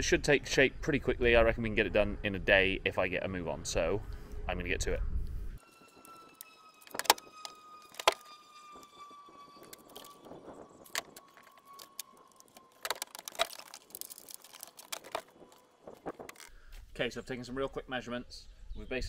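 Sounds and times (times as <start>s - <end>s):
tape measure clicking and rattling: 6.1s - 8.3s, 9.6s - 16.5s.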